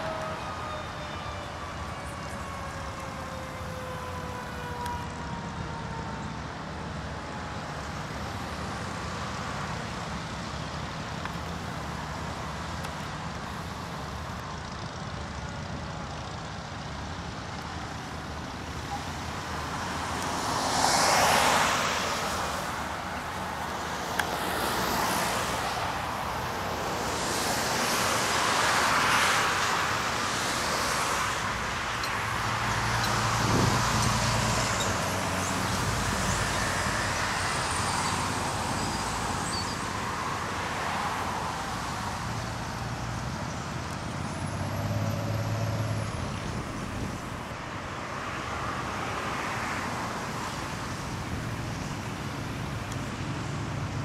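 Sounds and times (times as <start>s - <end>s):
fire engine siren: 0.0s - 9.3s, 15.6s - 42.2s
cars swishing past: 19.9s - 39.9s.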